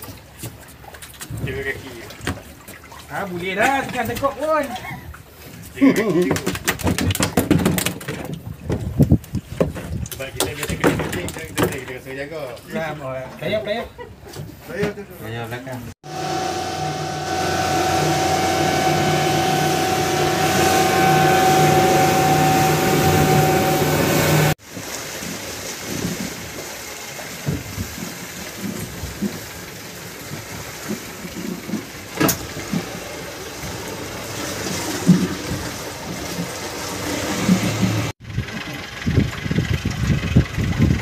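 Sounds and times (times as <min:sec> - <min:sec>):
rushing wake water: 0:00.0 - 0:06.8, 0:16.0 - 0:41.0
wind: 0:00.0 - 0:41.0
boat engine drone: 0:16.0 - 0:24.6, 0:32.0 - 0:41.0.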